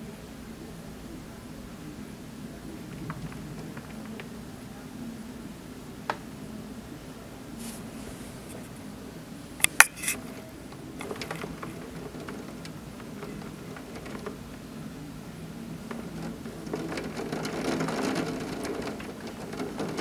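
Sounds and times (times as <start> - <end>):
low background rush: 0.0 - 20.0
raindrops tapping: 2.8 - 4.4, 10.7 - 14.9, 15.7 - 20.0.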